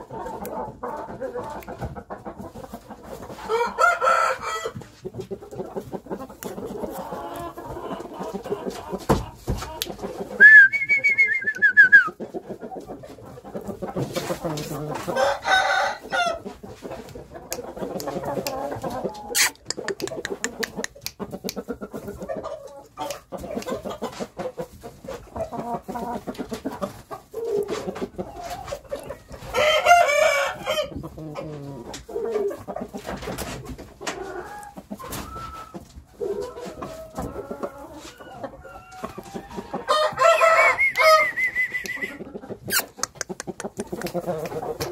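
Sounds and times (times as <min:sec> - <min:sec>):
chickens clucking: 0:00.0 - 0:44.9
rooster crowing: 0:03.5 - 0:04.8, 0:38.9 - 0:42.0.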